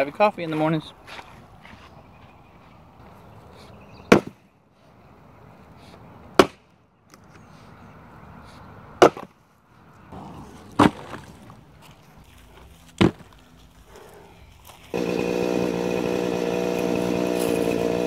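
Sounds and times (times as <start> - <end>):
axe splitting a log: 4.1 - 4.4, 6.4 - 6.6, 9.0 - 9.3, 13.0 - 13.3
chainsaw running: 14.6 - 18.0.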